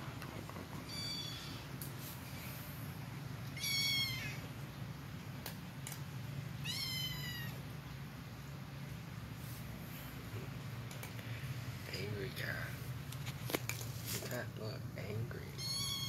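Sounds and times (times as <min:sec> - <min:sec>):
kitten mewing: 0:03.5 - 0:04.4, 0:06.6 - 0:07.6, 0:15.6 - 0:16.0.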